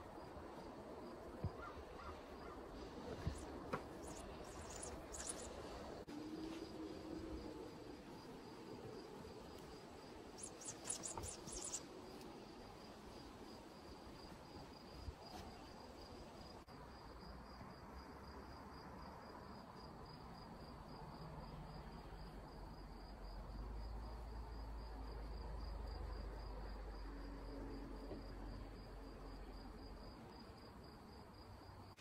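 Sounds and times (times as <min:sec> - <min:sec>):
insect trilling: 0:04.0 - 0:05.7, 0:10.0 - 0:11.9.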